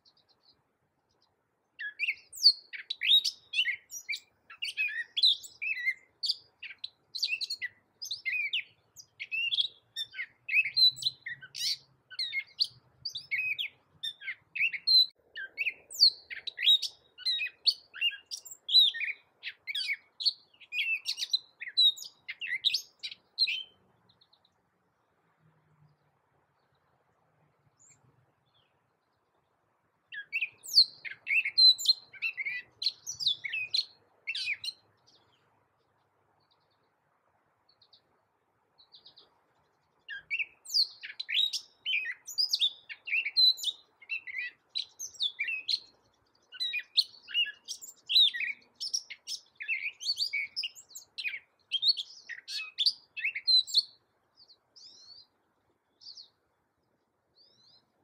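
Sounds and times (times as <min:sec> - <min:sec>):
catbird singing: 0:00.0 - 0:24.6, 0:30.1 - 0:35.5, 0:40.0 - 0:56.4.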